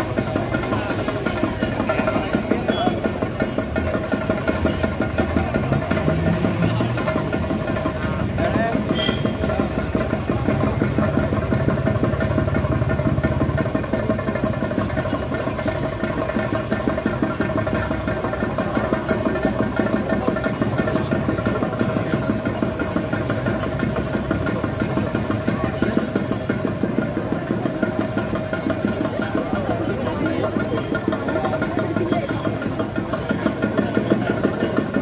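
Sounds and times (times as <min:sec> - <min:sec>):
fast drum roll: 0:00.0 - 0:35.0.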